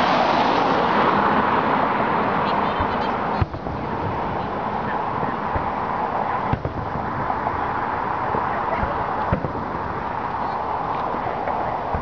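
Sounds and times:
steady background noise: 0:00.0 - 0:12.0
fireworks bangs: 0:02.6 - 0:12.0.

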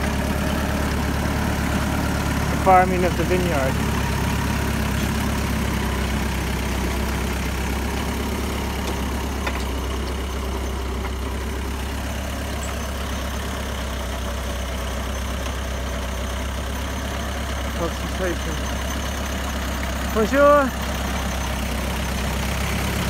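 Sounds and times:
tractor engine humming: 0:00.0 - 0:23.0.

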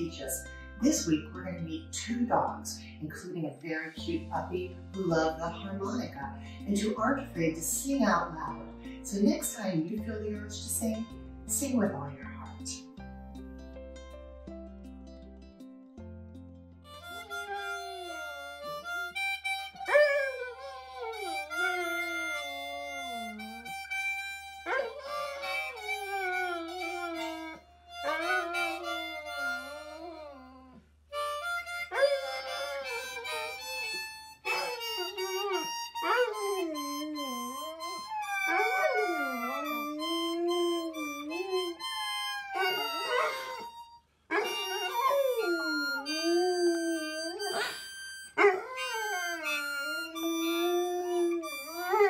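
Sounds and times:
harmonica chords: 0:16.8 - 0:52.0
dogs howling: 0:19.8 - 0:23.9, 0:24.6 - 0:30.8, 0:31.9 - 0:47.8, 0:48.4 - 0:52.0.

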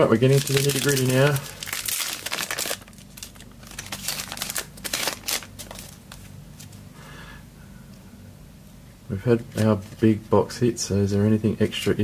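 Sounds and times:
cards and wrapper crinkling: 0:00.2 - 0:06.3.

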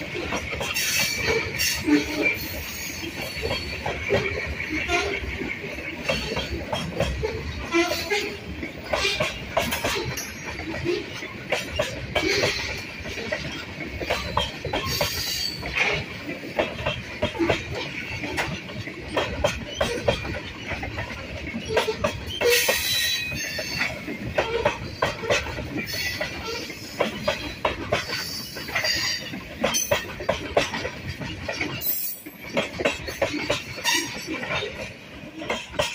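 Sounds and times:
low train rumble: 0:00.0 - 0:35.9
train wheels clicking over rail joints: 0:00.0 - 0:35.9
wheel squeals: 0:13.5 - 0:15.8, 0:21.5 - 0:30.0.

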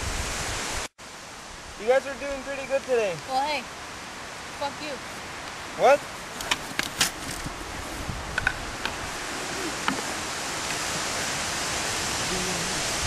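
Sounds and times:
wind rushing through trees: 0:00.0 - 0:13.0.

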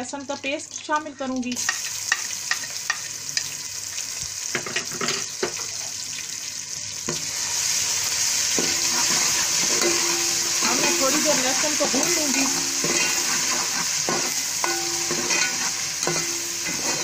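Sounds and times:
hot oil sizzling: 0:00.0 - 0:17.0
spoon stirring: 0:08.6 - 0:17.0.

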